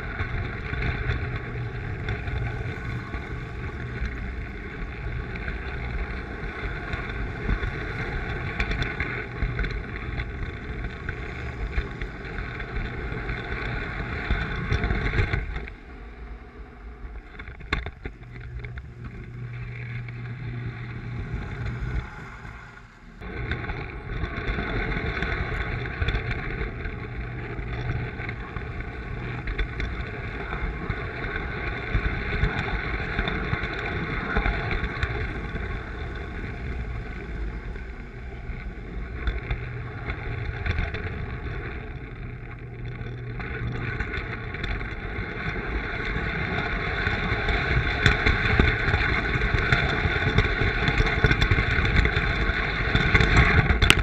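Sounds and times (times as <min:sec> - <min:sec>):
wheels clattering over rails: 0:00.0 - 0:54.0.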